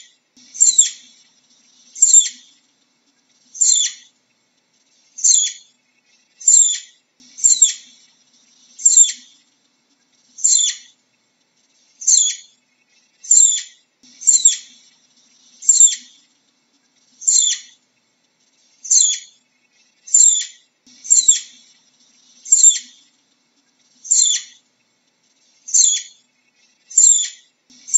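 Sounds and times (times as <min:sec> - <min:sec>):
flying squirrel calling: 0:00.6 - 0:01.1, 0:02.0 - 0:02.5, 0:03.5 - 0:04.1, 0:05.2 - 0:05.7, 0:06.4 - 0:08.0, 0:08.8 - 0:09.4, 0:10.4 - 0:11.0, 0:12.0 - 0:12.5, 0:13.2 - 0:14.8, 0:15.6 - 0:16.2, 0:17.2 - 0:17.8, 0:18.8 - 0:19.4, 0:20.0 - 0:21.7, 0:22.4 - 0:23.1, 0:23.9 - 0:24.6, 0:25.6 - 0:26.2, 0:26.9 - 0:27.9.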